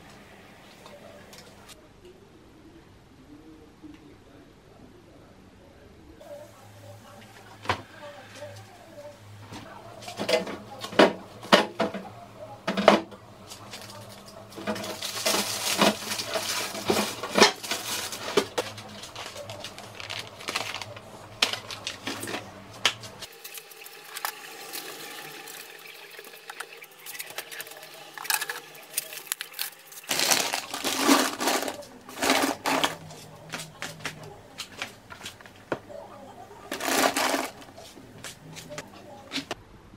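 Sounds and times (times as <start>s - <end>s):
items knocking on shelves: 9.6s - 13.2s
plastic bags rustling: 13.5s - 33.8s, 36.7s - 37.9s.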